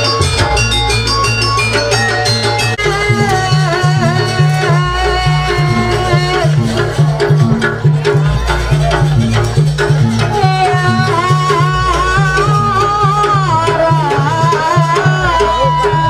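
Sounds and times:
sliding melody line: 0.0s - 7.5s
drums beating rhythm: 0.0s - 16.0s.

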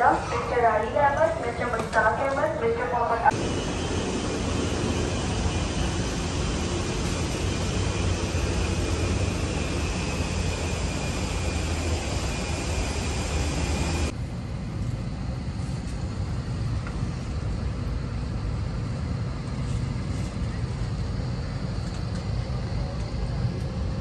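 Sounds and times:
rushing air with low hum: 3.2s - 24.0s.

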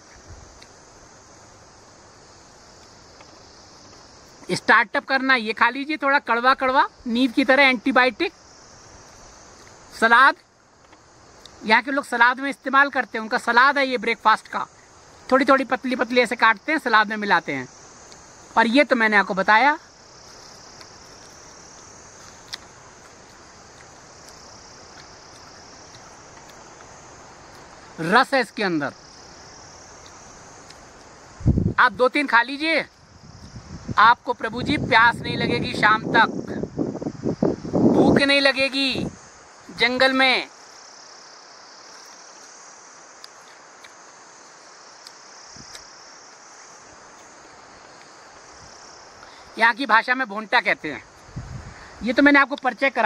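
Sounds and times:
crickets chirring: 0.0s - 53.0s
high-pitched insect drone: 0.0s - 53.0s
man chewing leaf: 20.1s - 28.0s, 29.1s - 31.2s, 41.8s - 48.6s.

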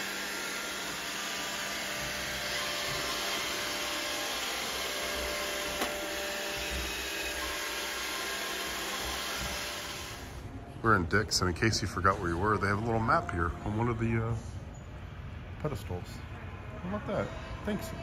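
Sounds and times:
robot vacuum whirring: 0.0s - 10.4s.

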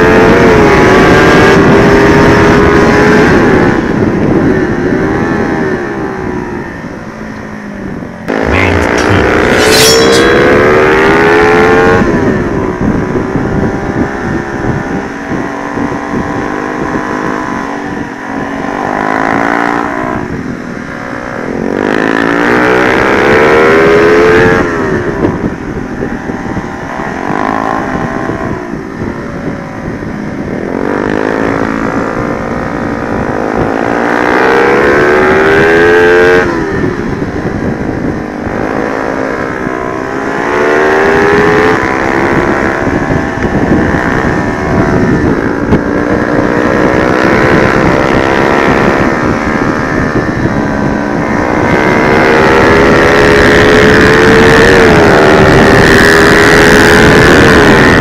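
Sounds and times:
wind noise on microphone: 0.0s - 58.0s
motorcycle engine revving: 37.9s - 58.0s.

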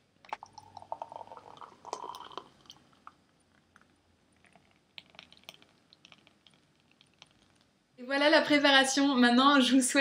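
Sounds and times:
smoothie pouring into mug: 0.3s - 7.7s
small wet clicks: 3.0s - 7.8s.

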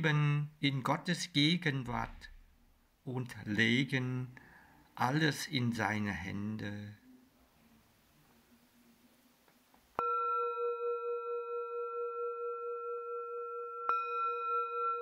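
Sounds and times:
singing bowl ringing: 10.0s - 15.0s.

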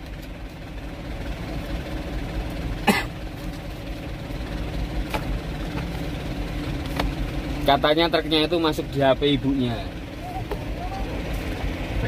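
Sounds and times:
truck engine idling: 0.0s - 12.0s
person coughing: 2.8s - 3.2s.

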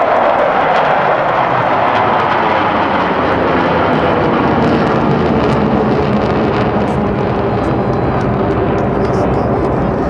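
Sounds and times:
fighter jets flying over: 0.0s - 10.0s.

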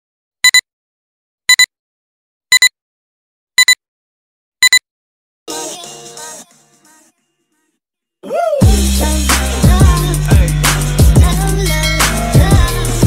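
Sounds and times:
countdown double beeps: 0.4s - 0.6s, 2.5s - 2.7s
music: 5.5s - 7.8s, 8.6s - 13.0s.

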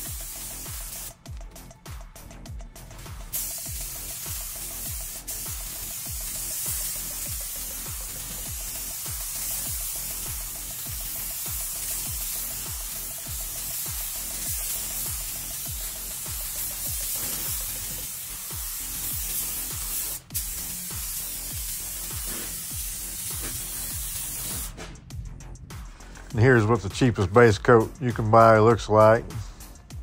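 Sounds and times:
paint spray gun hissing: 0.0s - 1.2s, 3.2s - 24.8s
background music with beat: 0.0s - 30.0s.

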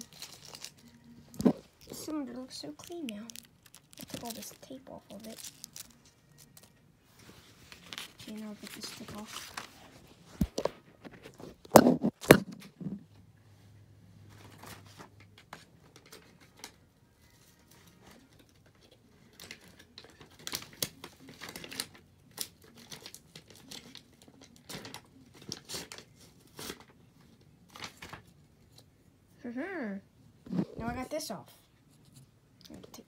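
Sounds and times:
tape being torn and peeled: 2.8s - 6.7s.

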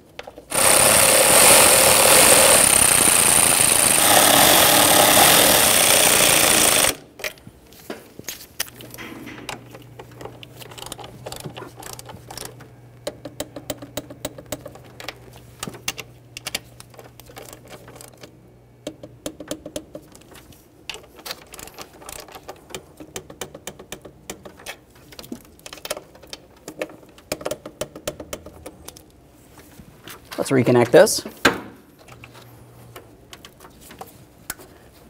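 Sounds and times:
ratchet wrench clicking: 0.5s - 7.0s.

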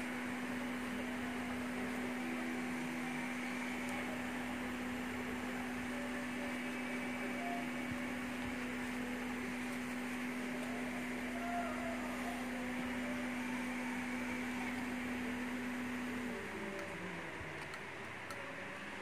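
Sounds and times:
electrical hum: 0.0s - 19.0s.

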